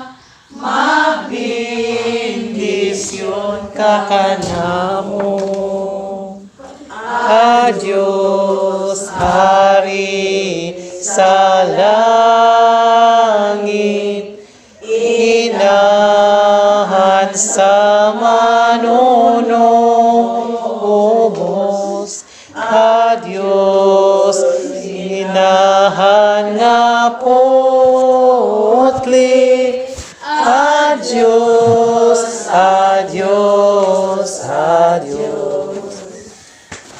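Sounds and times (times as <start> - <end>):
group singing a slow hymn: 0.0 - 36.9.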